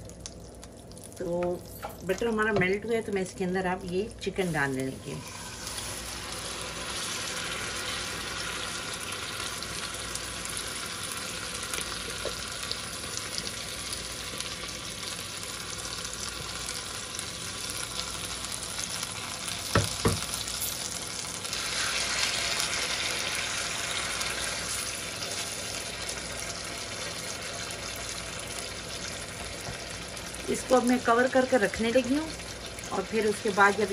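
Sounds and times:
chicken sizzling in a frying pan: 0.0s - 33.9s.

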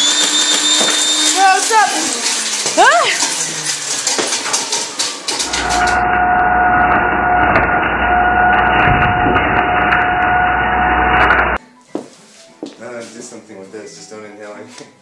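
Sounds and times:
blender motor drone with whine: 0.0s - 2.6s, 5.3s - 11.6s
blender grinding and rattling: 0.0s - 11.6s.

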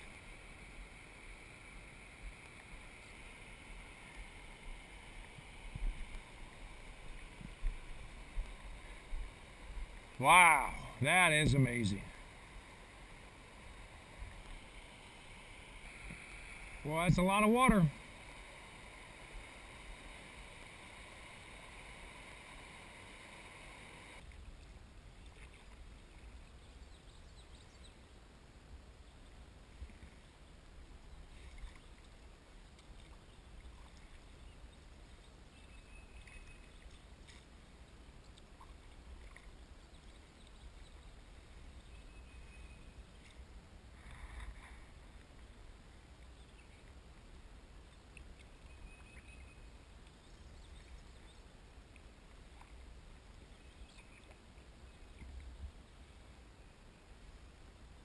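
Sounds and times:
water lapping around kayak: 0.0s - 11.0s, 11.9s - 27.8s, 28.8s - 56.5s
rushing spring water: 0.0s - 26.3s.

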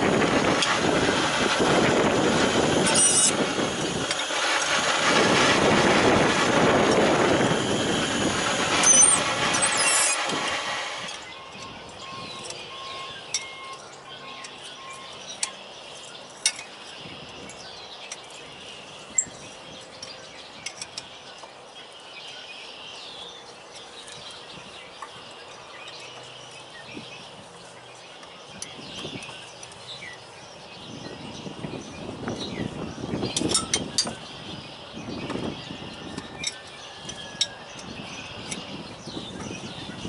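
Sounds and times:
faint birds chirping: 11.1s - 40.0s.

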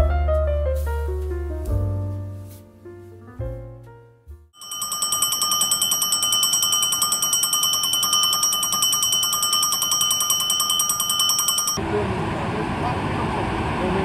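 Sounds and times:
background piano music: 0.0s - 4.6s
station platform bell ringing: 4.6s - 12.0s.

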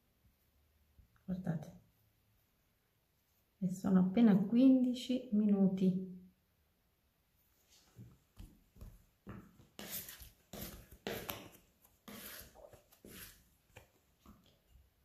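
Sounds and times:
dough scraper scraping work surface: 9.8s - 11.4s, 12.0s - 13.4s.

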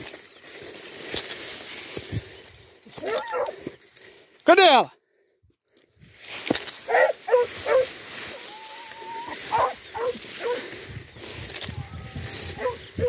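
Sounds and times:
dogs yelping: 3.0s - 3.6s, 6.8s - 10.8s, 12.0s - 13.0s
dog whining: 8.4s - 10.6s.

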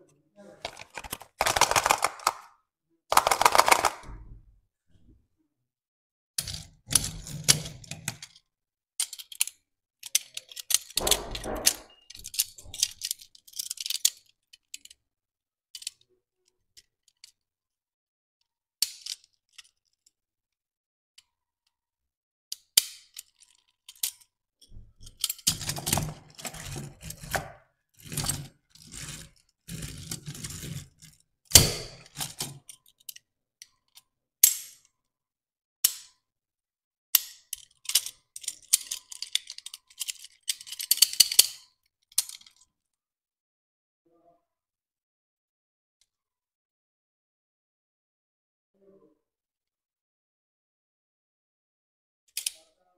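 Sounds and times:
toy parts clicking and tapping: 0.7s - 2.5s, 3.1s - 4.0s, 9.0s - 11.2s, 12.1s - 15.0s, 15.7s - 16.1s, 18.8s - 20.1s, 22.5s - 24.3s, 35.9s - 36.2s, 37.1s - 42.7s, 52.3s - 52.6s.

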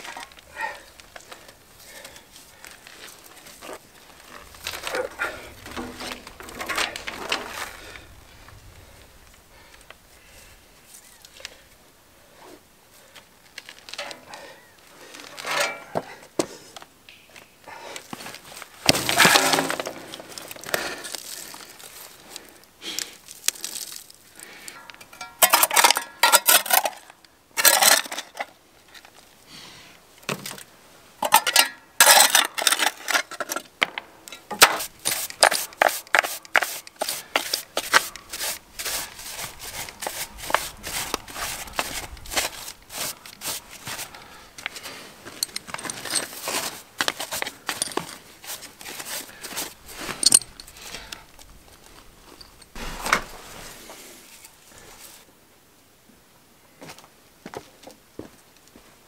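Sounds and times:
stones and grit clattering: 2.7s - 7.9s, 18.2s - 22.1s, 23.3s - 28.5s, 31.2s - 51.0s
hand tool scraping concrete: 18.9s - 21.2s, 25.1s - 27.0s, 34.5s - 44.2s, 46.0s - 49.8s.

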